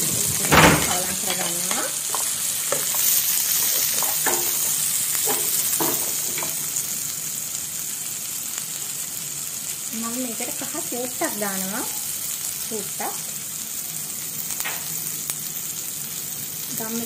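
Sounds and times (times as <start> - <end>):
vegetables sizzling in oil: 0.0 - 17.0
spoon stirring in a pan: 0.3 - 6.7.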